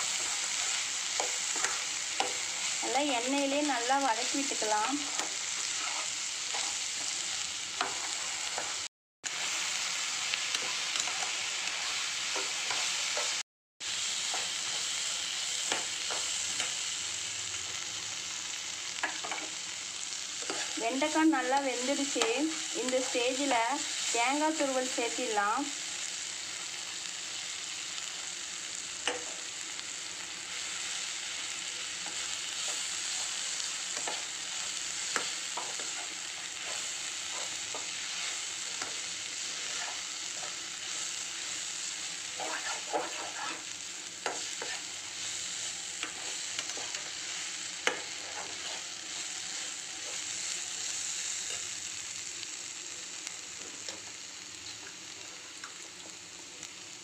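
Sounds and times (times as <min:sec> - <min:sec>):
spatula scraping a pan: 0:00.0 - 0:02.8, 0:04.2 - 0:08.8, 0:09.4 - 0:13.4, 0:20.3 - 0:20.9, 0:30.6 - 0:51.7
okra sizzling in oil: 0:00.0 - 0:57.0.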